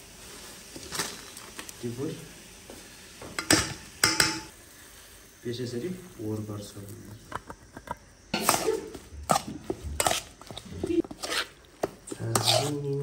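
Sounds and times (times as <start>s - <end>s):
metal spoon scraping metal bowl: 8.4s - 13.0s.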